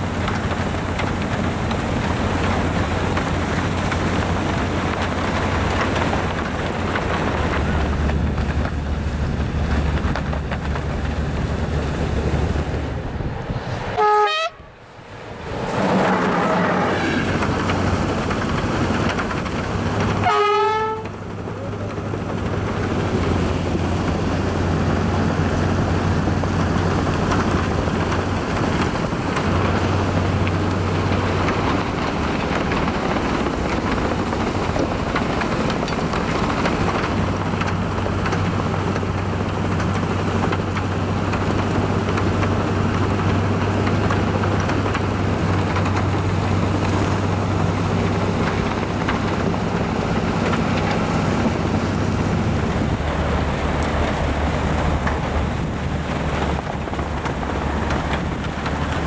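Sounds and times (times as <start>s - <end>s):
locomotive engine drone: 0.0s - 59.0s
snow rushing hiss: 14.8s - 19.0s.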